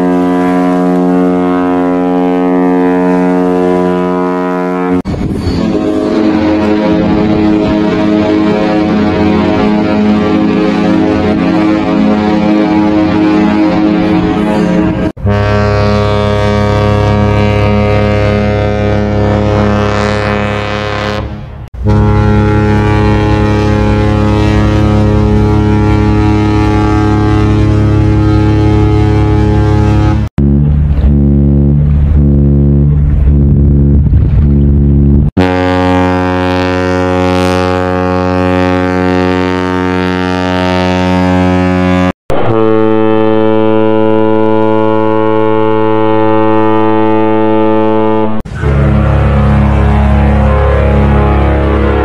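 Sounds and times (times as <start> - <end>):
deep ship horn blast: 0.0 - 52.0.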